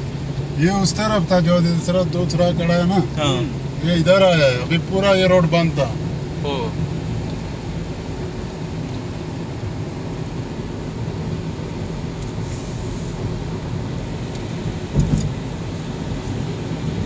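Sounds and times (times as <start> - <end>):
car driving on wet road: 0.0 - 17.0
windscreen wipers running: 0.0 - 17.0
low thump: 14.9 - 15.4.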